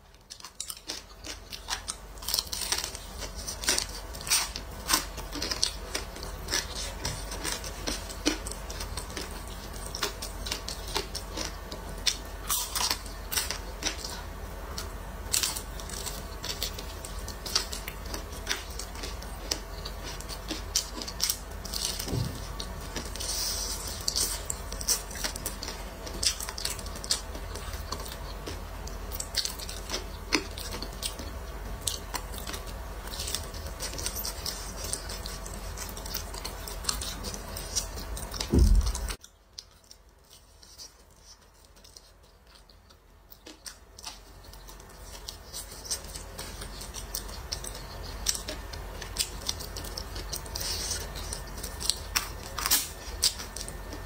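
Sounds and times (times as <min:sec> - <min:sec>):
crunchy chewing crackles: 0:00.0 - 0:54.0
steady low hum: 0:00.0 - 0:54.0
low thump: 0:22.0 - 0:22.5, 0:38.5 - 0:39.0.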